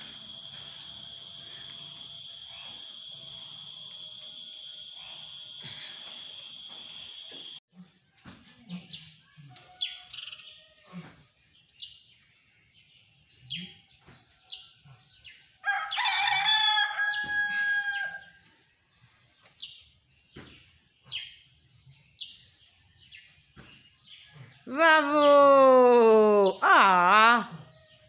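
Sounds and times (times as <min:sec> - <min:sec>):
rooster crowing: 0:15.6 - 0:18.4.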